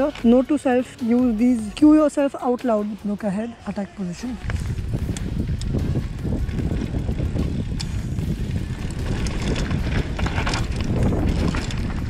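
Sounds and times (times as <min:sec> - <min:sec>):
bike tyres rumbling over dirt: 0:00.0 - 0:02.3, 0:04.0 - 0:12.0
bike knocking and rattling: 0:00.0 - 0:03.2, 0:04.1 - 0:12.0
wind buffeting microphone: 0:04.3 - 0:12.0.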